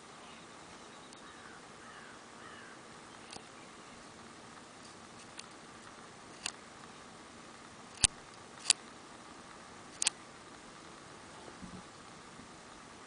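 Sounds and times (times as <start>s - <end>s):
faint steady hiss: 0.0s - 13.0s
sharp clicks: 3.1s - 3.5s, 5.2s - 6.6s, 7.9s - 8.8s, 9.5s - 10.2s.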